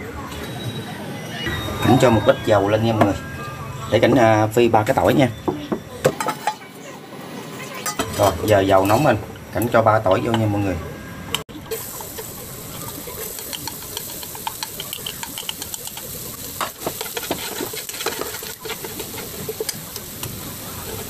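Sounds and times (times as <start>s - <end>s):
garlic sizzling in hot oil: 11.6s - 21.0s.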